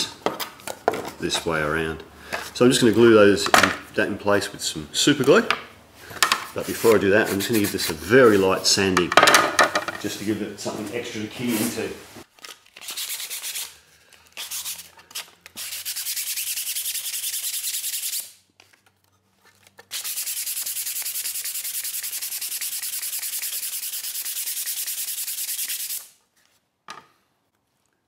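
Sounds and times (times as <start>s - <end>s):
sandpaper sanding plastic: 6.7s - 8.4s, 12.8s - 13.7s, 14.4s - 18.3s, 19.9s - 26.1s.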